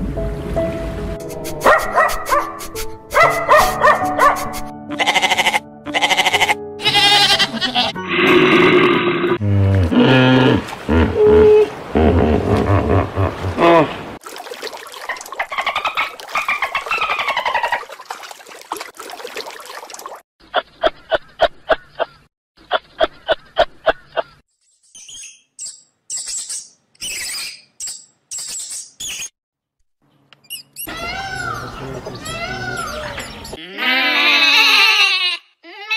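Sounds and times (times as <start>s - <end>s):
pitched animal calls: 5.0s - 10.0s, 30.9s - 35.9s.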